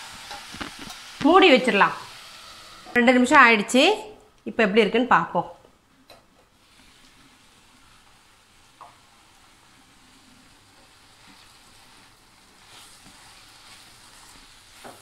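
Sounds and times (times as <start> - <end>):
vegetables sizzling in oil: 0.0 - 3.7, 6.5 - 15.0
spatula stirring and scraping: 6.6 - 15.0.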